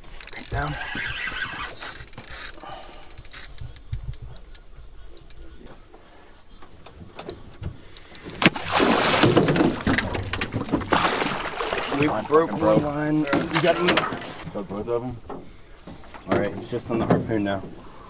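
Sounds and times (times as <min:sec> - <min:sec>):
fishing reels clicking: 0:00.0 - 0:05.4, 0:07.9 - 0:08.4
alligator splashing: 0:08.1 - 0:14.6.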